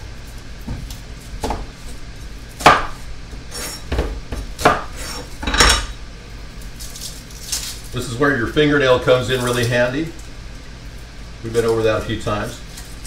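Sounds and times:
cleaver chopping on wooden board: 2.6s - 3.0s, 3.9s - 4.9s.

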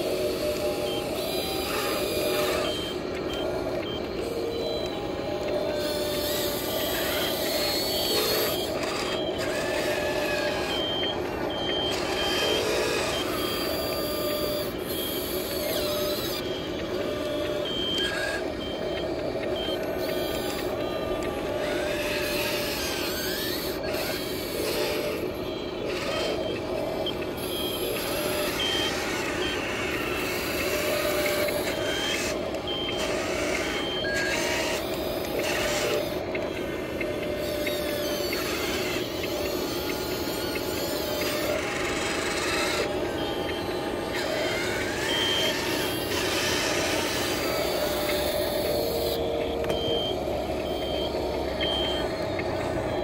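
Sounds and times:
small electric motors whirring: 0.0s - 53.0s
short high reversing beeps: 47.4s - 53.0s.

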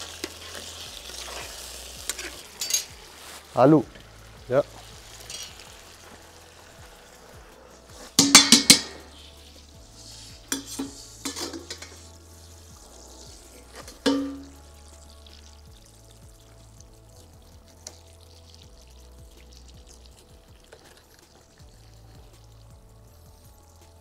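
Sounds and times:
metal ladle scraping a wok: 0.0s - 3.5s, 5.2s - 5.6s, 8.0s - 12.2s, 13.0s - 14.4s
faint sizzle: 0.0s - 24.0s.

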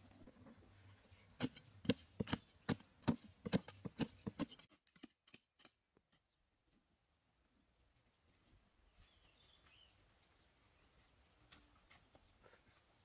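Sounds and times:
digging tools chopping earth: 1.4s - 5.8s.

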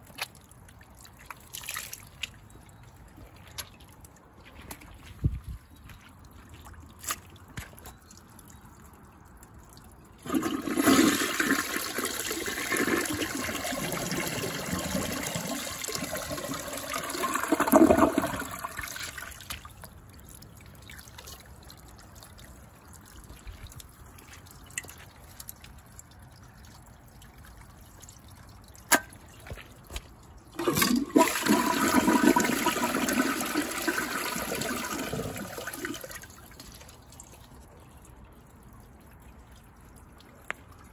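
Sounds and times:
toilet flushing: 10.2s - 19.2s, 30.6s - 36.2s.

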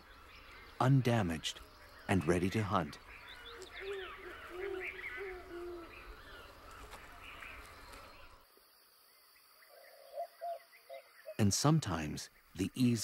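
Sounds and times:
higher chirping calls: 1.6s - 8.3s.

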